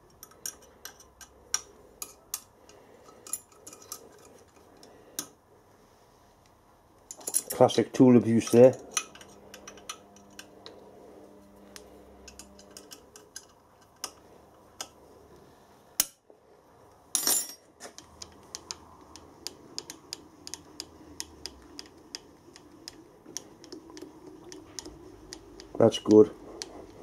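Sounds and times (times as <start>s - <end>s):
metal tools clicking on steel: 0.1s - 2.5s.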